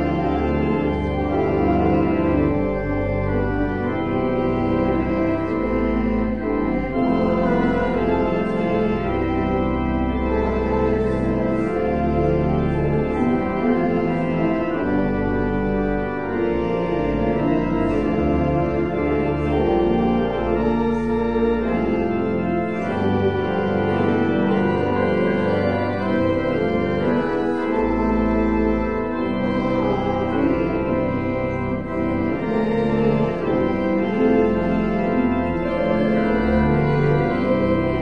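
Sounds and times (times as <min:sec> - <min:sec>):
church organ chords: 0:00.0 - 0:38.0.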